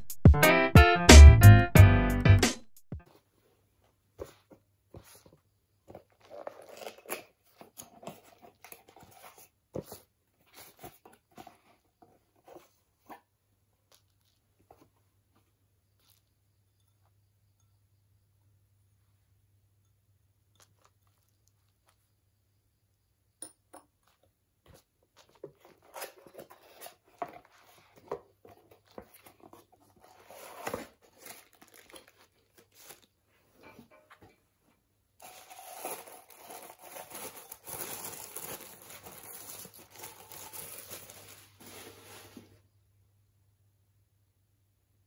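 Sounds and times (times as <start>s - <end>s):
cardboard box being handled: 25.2s - 33.0s, 35.2s - 42.6s
packing wrap crinkling: 30.0s - 33.2s, 35.2s - 42.5s.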